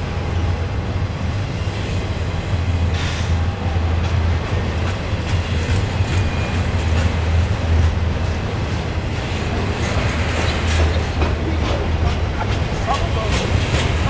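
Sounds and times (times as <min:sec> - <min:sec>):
freight train rumbling past: 0:00.0 - 0:14.0
wheels clacking on rails: 0:00.0 - 0:14.0.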